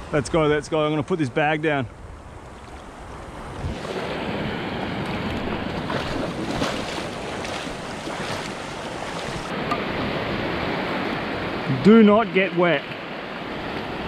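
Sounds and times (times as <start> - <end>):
surf washing: 0.0 - 14.0
footsteps splashing in shallow water: 2.4 - 9.5.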